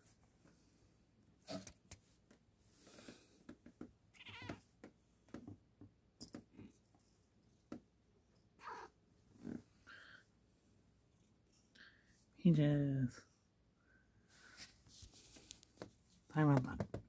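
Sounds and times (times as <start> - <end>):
cat meowing: 4.2 - 4.6, 8.6 - 9.0
faint clicks and rustles: 14.5 - 17.0.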